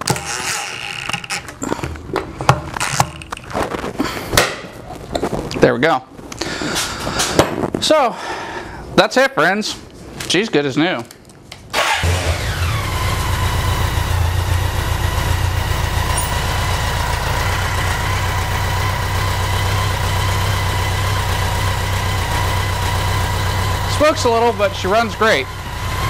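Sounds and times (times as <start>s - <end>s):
motorcycle engine starting and idling: 11.7s - 26.0s
engine whine: 11.8s - 26.0s.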